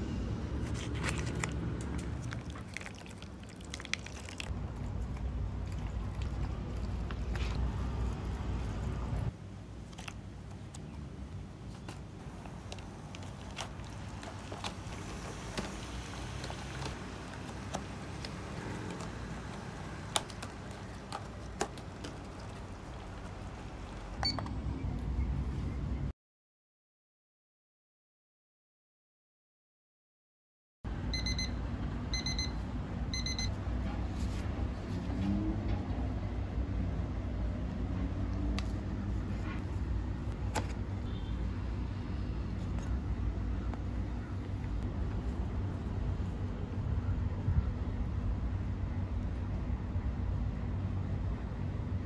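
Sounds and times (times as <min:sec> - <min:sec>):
water pouring: 0:02.2 - 0:04.5.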